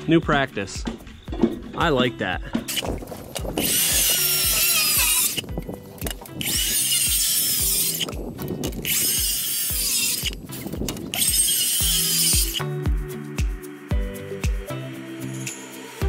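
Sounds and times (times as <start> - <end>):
background music with beat: 0.0 - 16.0
circular saw cutting wood: 3.6 - 5.4, 6.4 - 8.2, 8.8 - 10.4, 11.1 - 12.7.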